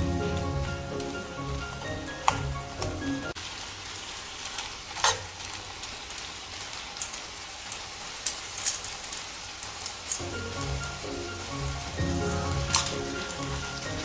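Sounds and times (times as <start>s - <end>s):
chicken sizzling in a skillet: 0.0s - 14.0s
sharp crackles of frying: 0.0s - 14.0s.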